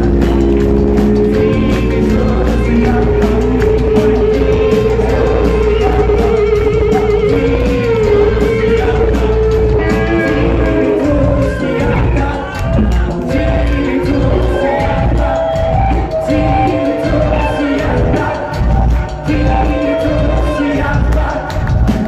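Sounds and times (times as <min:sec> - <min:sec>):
live rock band playing: 0:00.0 - 0:22.0
person singing: 0:00.0 - 0:22.0.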